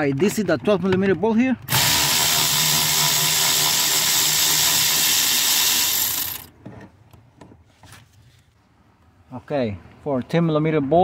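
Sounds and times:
cordless electric ratchet running: 0:01.7 - 0:06.5.

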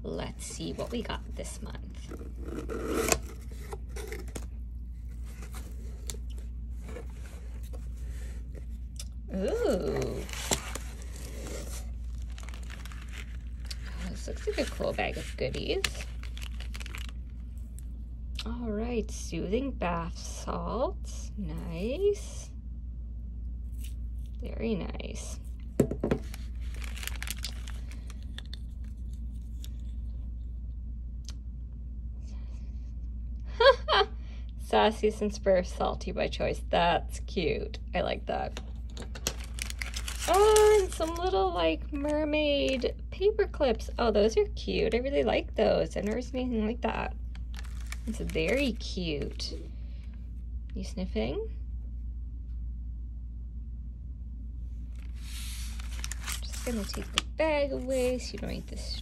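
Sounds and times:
steady low hum: 0:00.0 - 0:59.0
tape tearing off cardboard box: 0:02.1 - 0:04.4
cardboard rustles and taps: 0:25.8 - 0:26.4.

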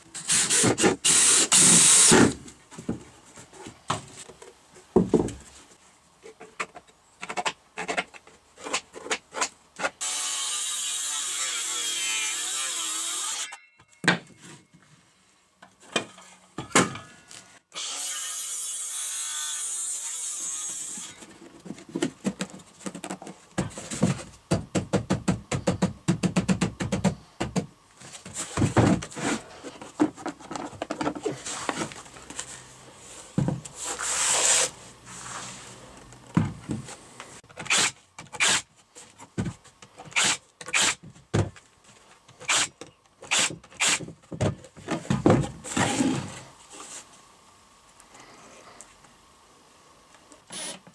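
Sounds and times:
circular saw cutting wood: 0:10.0 - 0:13.6.

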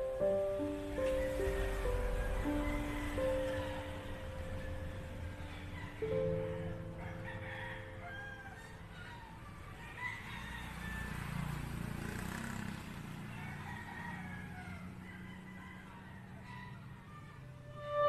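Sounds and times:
background music: 0:00.0 - 0:09.3, 0:17.7 - 0:18.0
rooster crowing: 0:00.6 - 0:11.8, 0:13.2 - 0:18.0.

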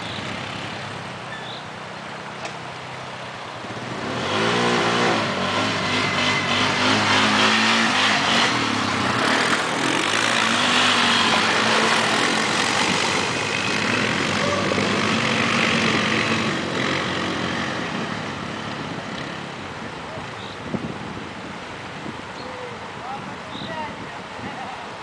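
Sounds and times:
quad engine revving: 0:03.8 - 0:19.5.

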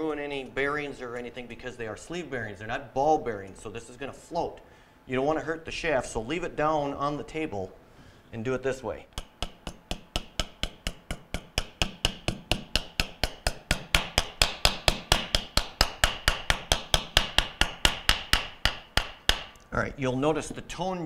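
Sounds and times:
hammer tapping on steel ring: 0:09.1 - 0:19.5.

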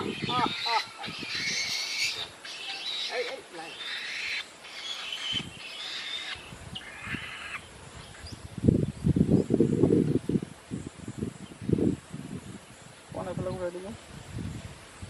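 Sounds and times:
owl hissing screeches: 0:00.0 - 0:07.7.

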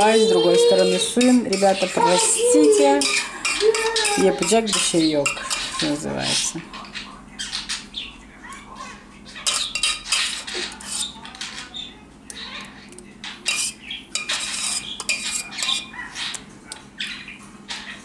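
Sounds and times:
metal ladle scraping baking tray: 0:00.0 - 0:06.5, 0:09.4 - 0:11.2, 0:13.4 - 0:15.9.

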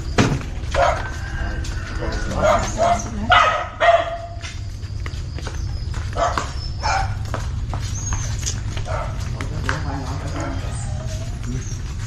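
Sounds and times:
dog barking: 0:00.7 - 0:01.4, 0:02.3 - 0:04.4, 0:06.1 - 0:07.3, 0:08.8 - 0:09.4.

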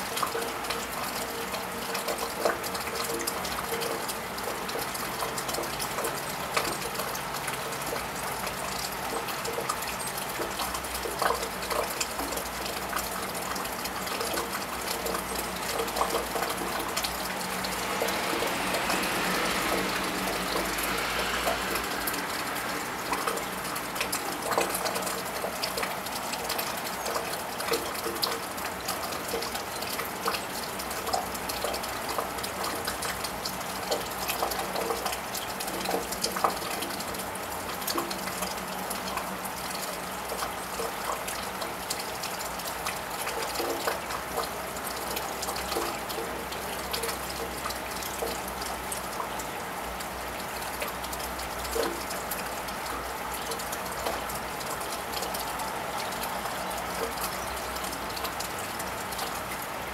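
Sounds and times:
drops and drips ticking: 0:00.0 - 0:59.9
steady rain falling: 0:00.0 - 0:59.9
car tyres hissing on wet road: 0:17.4 - 0:24.4.

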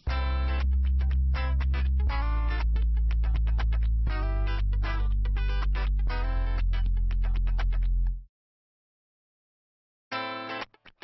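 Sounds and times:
plucked guitar-like notes: 0:00.0 - 0:08.2
held bass: 0:00.0 - 0:08.3.

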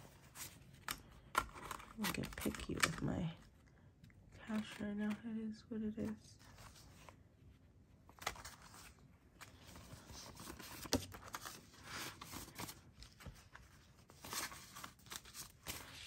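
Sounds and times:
paper banknotes rustling: 0:08.1 - 0:16.0.

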